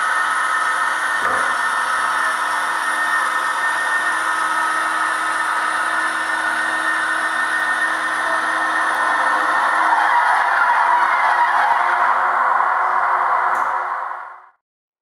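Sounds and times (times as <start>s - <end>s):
model train motor whirring: 0.0s - 11.0s.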